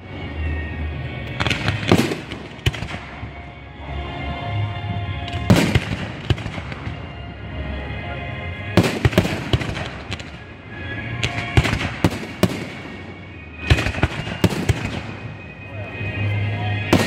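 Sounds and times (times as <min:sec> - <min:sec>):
fireworks bursting with sharp bangs: 0:01.4 - 0:03.4, 0:05.2 - 0:07.3, 0:08.7 - 0:15.6.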